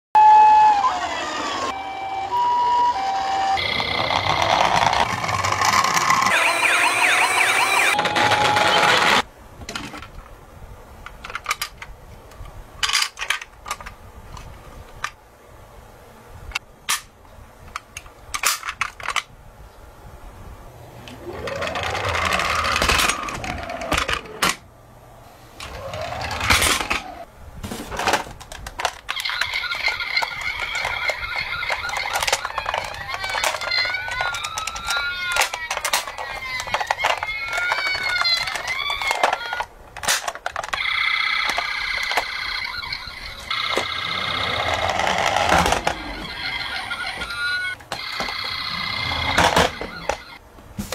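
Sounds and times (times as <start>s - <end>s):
toy electronic siren: 0.2s - 9.2s, 21.2s - 24.1s, 29.1s - 39.7s, 40.7s - 50.4s
plastic toy vehicles clicking: 3.6s - 10.1s, 12.8s - 15.2s, 21.1s - 24.6s, 28.0s - 50.4s.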